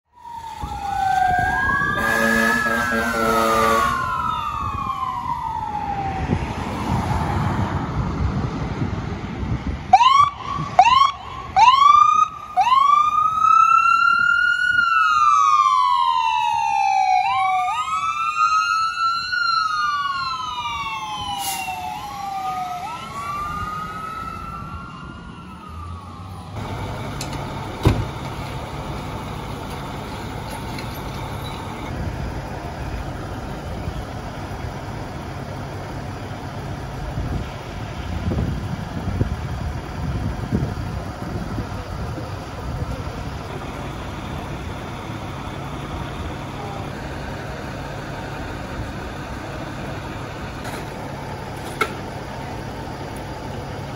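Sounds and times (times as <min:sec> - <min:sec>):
fire engine siren wailing: 0:00.0 - 0:53.9
street noise: 0:00.0 - 0:53.9
horn blast: 0:01.9 - 0:04.0.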